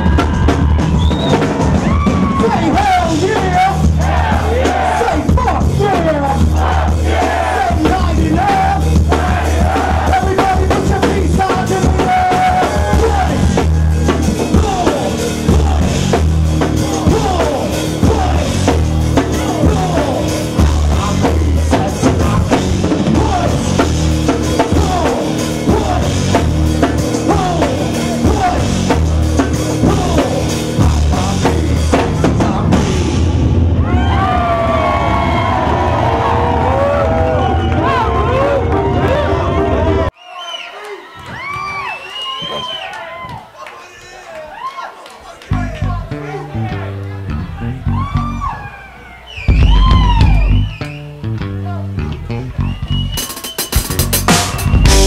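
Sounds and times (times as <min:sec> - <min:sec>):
heavy bass drum: 0:00.0 - 0:35.7, 0:49.5 - 0:50.8, 0:52.3 - 0:55.0
rock band playing: 0:00.0 - 0:40.1, 0:45.5 - 0:55.0.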